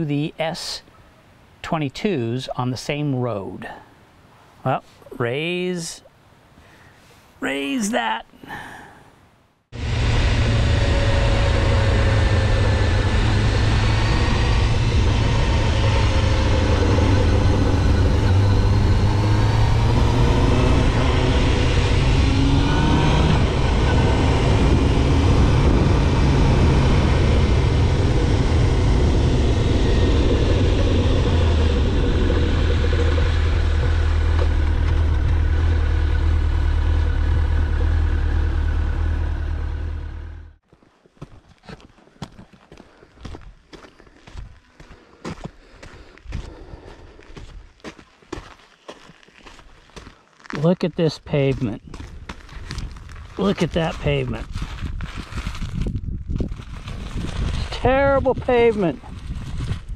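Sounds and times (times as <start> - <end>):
motorcycle engine revving: 9.7 - 40.6
wind and road noise: 9.7 - 40.6, 41.2 - 59.9.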